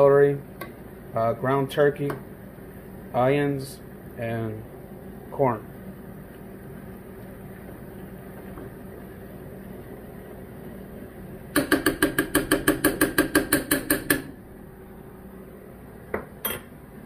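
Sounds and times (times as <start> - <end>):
steady low hum: 0.0 - 17.0
metal spoon clanking on pot: 16.4 - 16.7.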